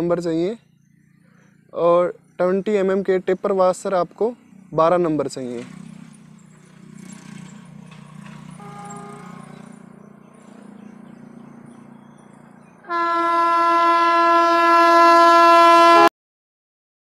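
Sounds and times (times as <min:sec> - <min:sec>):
electric locomotive rumbling: 0:05.6 - 0:16.1
train horn blast: 0:08.5 - 0:09.8, 0:12.9 - 0:16.1.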